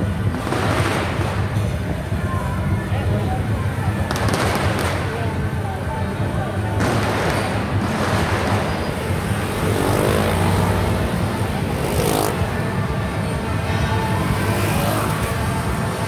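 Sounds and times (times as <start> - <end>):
motor scooters passing: 6.6 - 16.0.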